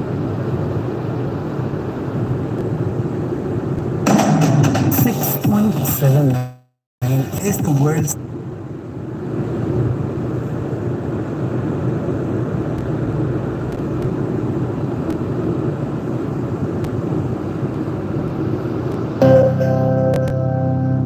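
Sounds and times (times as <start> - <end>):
car interior road and engine rumble: 0.0 - 4.1, 7.0 - 19.3.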